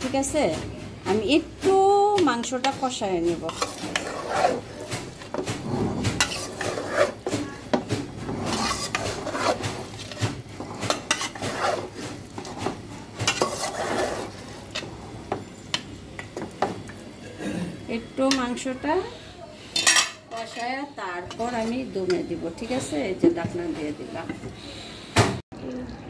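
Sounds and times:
metal spatula scraping a pot: 0:02.2 - 0:15.8, 0:19.7 - 0:23.1.

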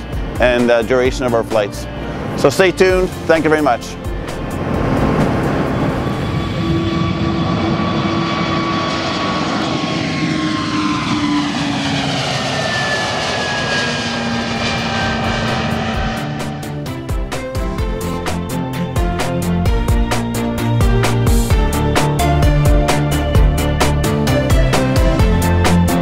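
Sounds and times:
engine whine tones: 0:00.0 - 0:26.0
jet engine roar: 0:00.0 - 0:26.0.

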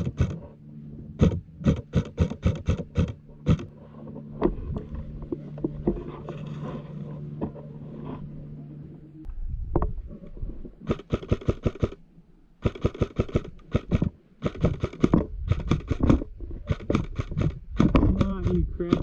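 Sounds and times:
steady low hum: 0:00.0 - 0:19.0
airsoft rifle firing bursts: 0:10.9 - 0:12.0, 0:12.6 - 0:18.3.

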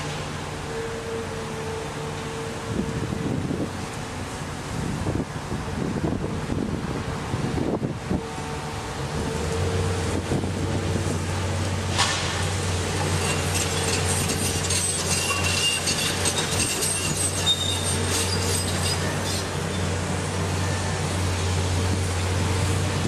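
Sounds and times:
excavator diesel engines running: 0:00.0 - 0:23.0
high metallic squeals: 0:13.1 - 0:20.0.

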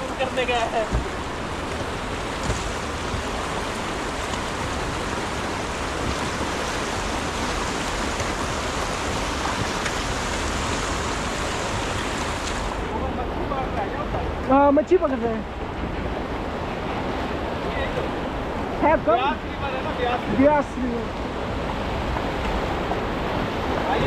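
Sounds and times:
river rushing over rocks: 0:00.0 - 0:24.0.

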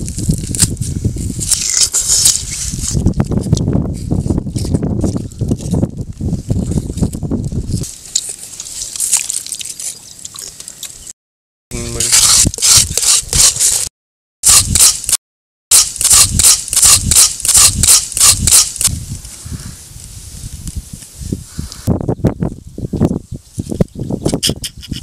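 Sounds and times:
plastic scoop scraping watermelon: 0:11.8 - 0:13.9.

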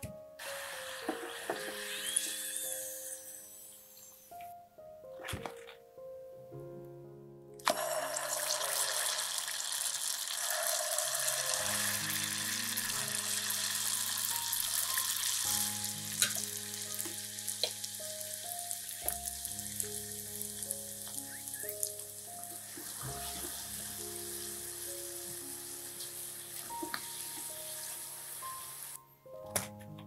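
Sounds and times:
oil crackling and popping: 0:07.6 - 0:23.8
dough sizzling in hot oil: 0:07.7 - 0:29.0.

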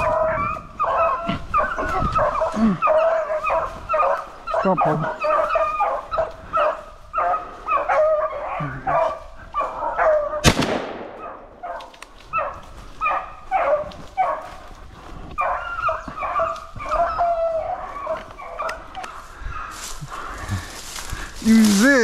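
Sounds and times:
hounds baying: 0:00.0 - 0:10.5, 0:11.1 - 0:22.0
gunshot echoing: 0:10.4 - 0:11.5.

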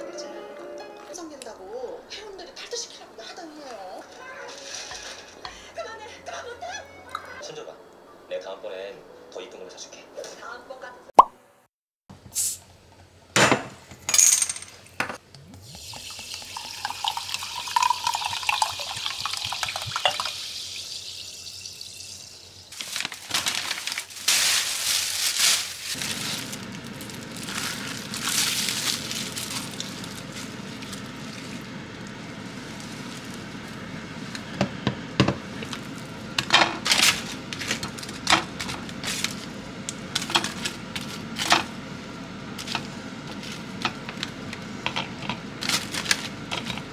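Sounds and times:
fizzing water pouring into mug: 0:15.5 - 0:22.4
plastic bag crinkling: 0:22.7 - 0:33.9, 0:45.6 - 0:46.8.

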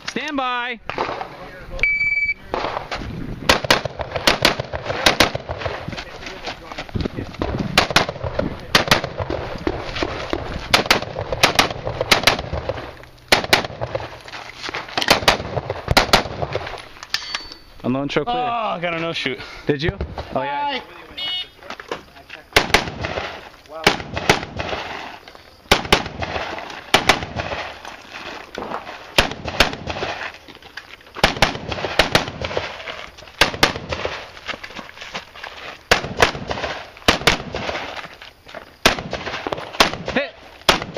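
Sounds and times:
rifle shots: 0:03.5 - 0:05.8, 0:07.8 - 0:14.1, 0:15.0 - 0:16.7, 0:22.6 - 0:25.0, 0:25.7 - 0:27.8, 0:29.2 - 0:30.3, 0:31.2 - 0:32.7, 0:33.4 - 0:34.2, 0:35.9 - 0:37.9, 0:38.8 - 0:40.9.

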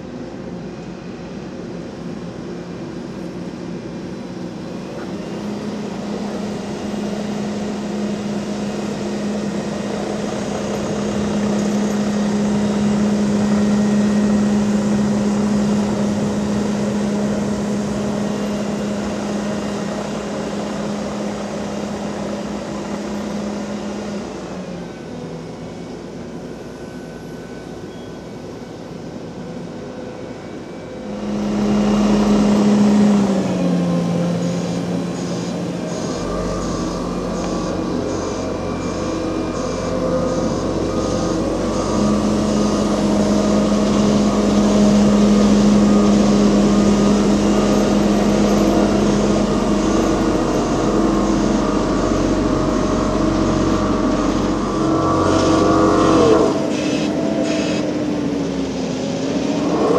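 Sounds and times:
diesel machinery droning: 0:00.0 - 0:59.9
second machine drone: 0:29.8 - 0:59.9.

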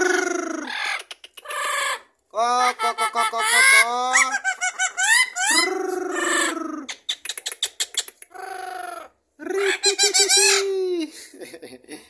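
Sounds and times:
parrot imitating a hen: 0:00.0 - 0:07.0.

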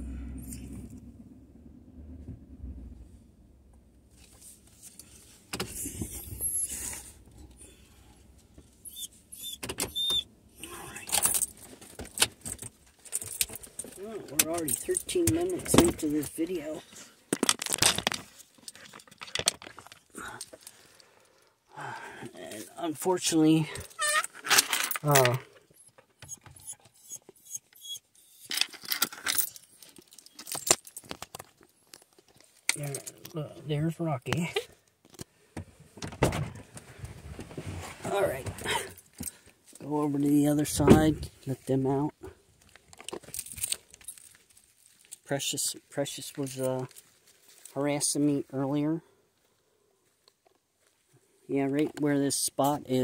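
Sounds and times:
rustling and clicks in vehicle cab: 0:02.0 - 0:20.8, 0:23.8 - 0:27.8, 0:28.4 - 0:45.3
light metallic jingling: 0:12.9 - 0:16.2.

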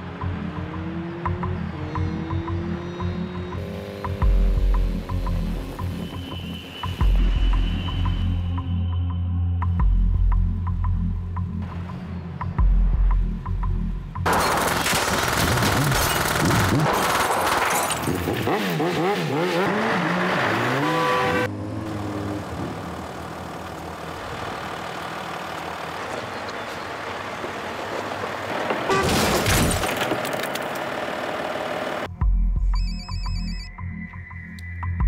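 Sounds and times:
rapid gunfire: 0:14.3 - 0:17.6
glass shattering: 0:14.3 - 0:18.4, 0:29.0 - 0:30.6.

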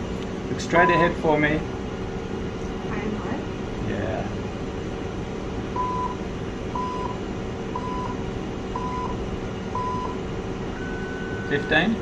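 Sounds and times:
background hum: 0:00.0 - 0:12.0
electronic timer beeping: 0:05.8 - 0:06.2, 0:06.8 - 0:07.2, 0:07.8 - 0:08.2, 0:08.8 - 0:10.2, 0:10.8 - 0:11.9.

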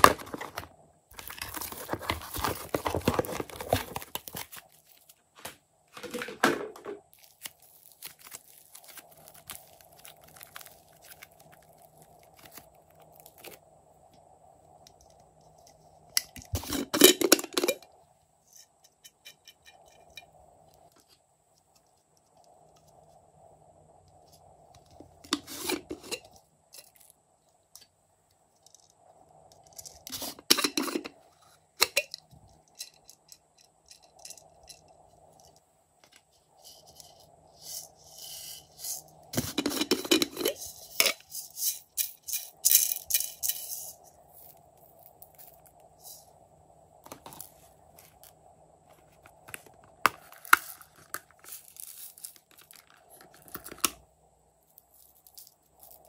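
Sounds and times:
plastic containers clicking and knocking: 0:00.0 - 0:04.6, 0:05.4 - 0:07.2
crackling and rustling: 0:00.0 - 0:17.8, 0:18.4 - 0:54.0
faint steady hum: 0:00.0 - 0:56.0.

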